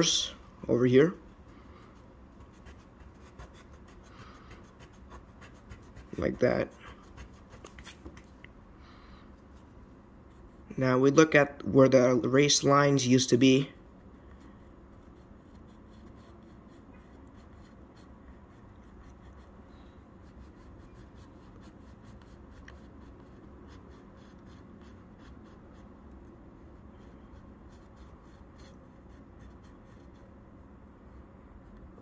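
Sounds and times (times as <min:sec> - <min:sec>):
low background hum: 0:00.0 - 0:32.0
pencil scratching on paper: 0:01.9 - 0:08.0, 0:13.8 - 0:19.6, 0:20.2 - 0:26.0, 0:26.6 - 0:30.3.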